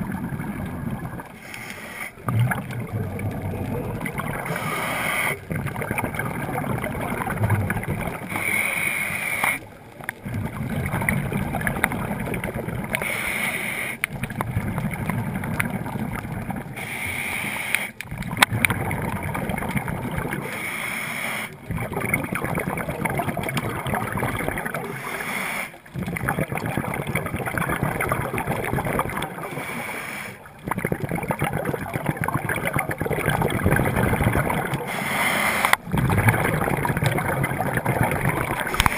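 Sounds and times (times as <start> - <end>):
exhaled bubbles rushing: 0.0 - 1.5, 2.2 - 8.7, 9.6 - 13.2, 14.0 - 16.9, 18.0 - 20.5, 21.5 - 25.2, 25.8 - 29.6, 30.4 - 38.9
regulator hissing inhale: 1.4 - 2.2, 4.4 - 5.4, 8.3 - 9.7, 13.0 - 14.1, 16.8 - 18.0, 20.4 - 21.6, 24.9 - 25.9, 29.4 - 30.5, 34.8 - 35.8.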